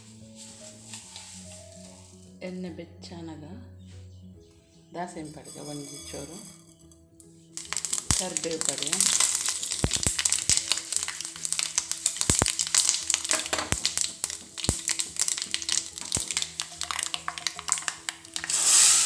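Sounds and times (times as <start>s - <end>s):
faint background music: 0.0s - 19.0s
seeds spluttering in hot oil: 7.6s - 19.0s.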